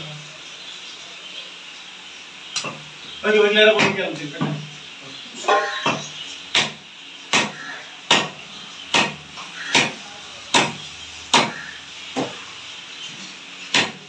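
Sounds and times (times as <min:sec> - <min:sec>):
cleaver chopping on wooden block: 0:05.9 - 0:11.6, 0:13.7 - 0:14.0.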